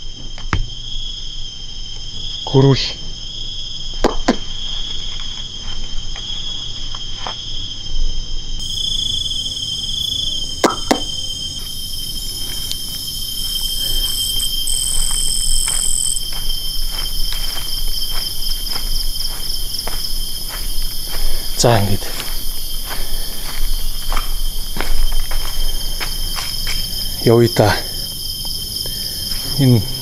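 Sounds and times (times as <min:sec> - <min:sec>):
night insects trilling: 0:00.0 - 0:30.0
faint footsteps: 0:10.9 - 0:27.3, 0:27.9 - 0:30.0.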